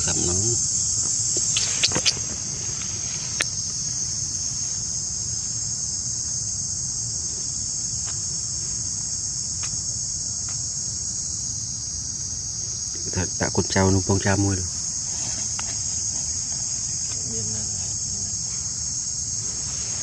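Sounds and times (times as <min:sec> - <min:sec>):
high-pitched insect drone: 0:00.0 - 0:20.0
sharp clicks: 0:01.4 - 0:02.2.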